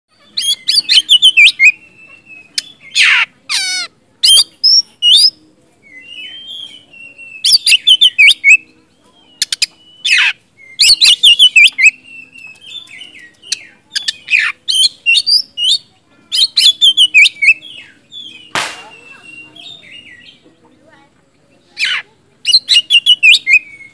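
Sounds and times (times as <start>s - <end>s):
bird singing whistles and chips: 4.2s - 20.4s, 22.5s - 23.9s.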